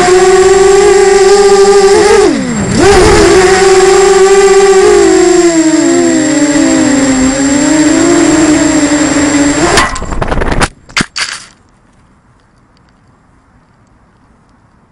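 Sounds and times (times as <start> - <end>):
drone motors whining: 0.0 - 10.6.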